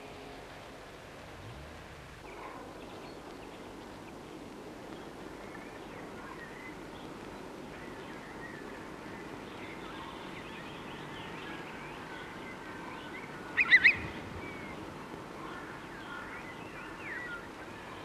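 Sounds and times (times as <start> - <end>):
faint bird chirps: 5.4 - 18.0
chickadee calling: 13.0 - 14.8.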